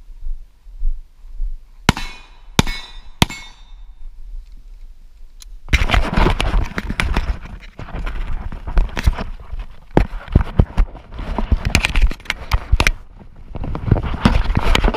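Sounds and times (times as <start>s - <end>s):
pistol shots: 1.9s - 3.7s
rustling and knocking in grass: 5.7s - 14.9s.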